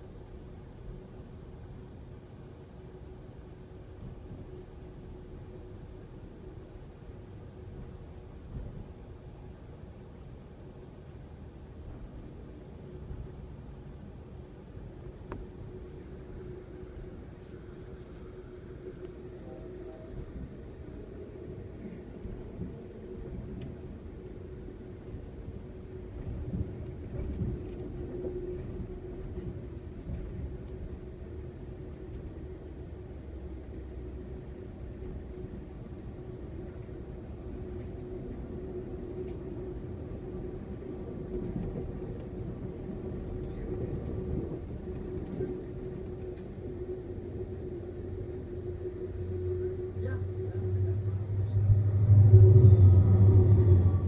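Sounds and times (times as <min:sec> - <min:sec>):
faint steady hum: 0:00.0 - 0:54.0
train rumble from inside: 0:00.0 - 0:54.0
steady hum: 0:45.6 - 0:54.0.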